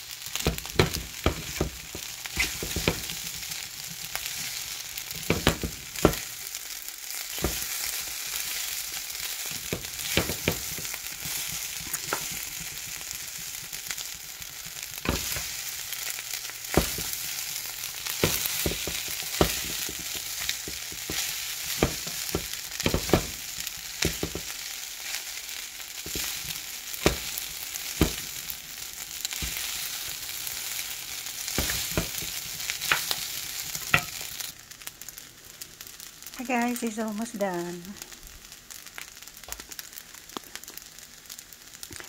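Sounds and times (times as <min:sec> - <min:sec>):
fried rice sizzling: 0:00.0 - 0:42.0
spatula knocking and scraping pan: 0:00.3 - 0:06.4, 0:07.3 - 0:08.6, 0:09.2 - 0:14.0, 0:14.6 - 0:15.7, 0:16.7 - 0:24.7, 0:26.0 - 0:28.5, 0:29.3 - 0:30.3, 0:31.4 - 0:34.5.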